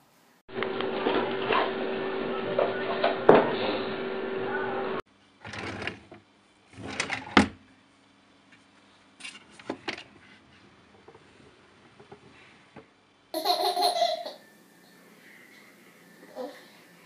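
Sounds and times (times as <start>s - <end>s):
baby laughing: 13.4s - 14.4s.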